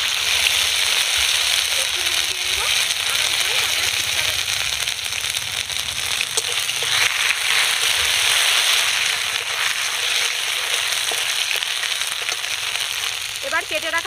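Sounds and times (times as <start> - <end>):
crackles and pops: 0.0 - 14.0
spices sizzling in hot oil: 0.0 - 14.0
spatula stirring in metal pan: 6.0 - 13.4.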